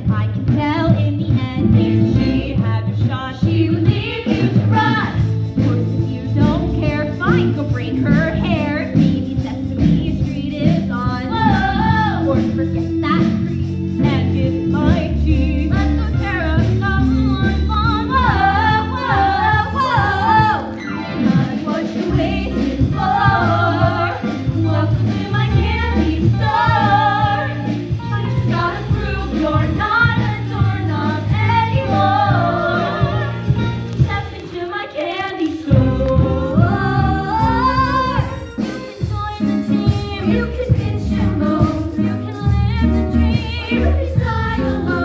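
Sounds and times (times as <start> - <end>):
musical accompaniment with bass beat: 0.0 - 34.6, 35.6 - 45.0
women singing together: 10.7 - 12.4, 14.8 - 33.4, 34.0 - 38.4, 40.2 - 45.0.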